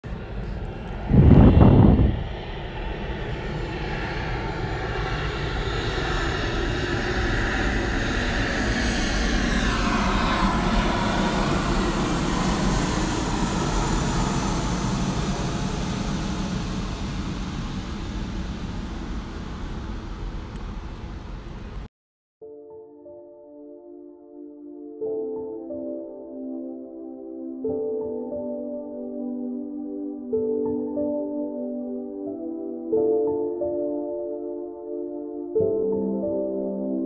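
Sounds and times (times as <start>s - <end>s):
aircraft passing roar: 0.1s - 21.9s.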